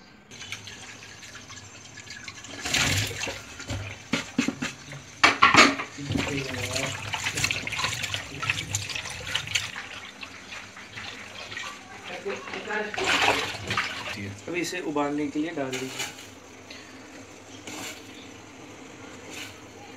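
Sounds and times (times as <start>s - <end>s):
tap water running into pot: 0.3s - 19.9s
fruit pieces splashing into water: 5.9s - 14.3s.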